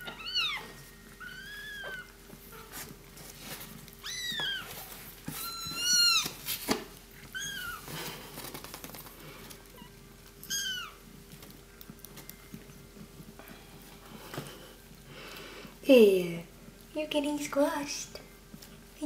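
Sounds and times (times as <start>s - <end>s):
rustling of fur and towels: 0.0s - 15.1s.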